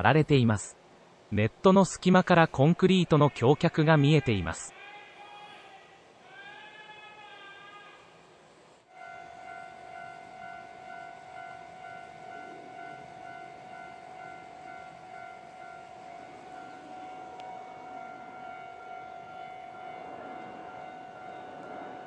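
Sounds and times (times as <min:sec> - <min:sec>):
level-crossing warning alarm ringing: 0:08.9 - 0:22.0.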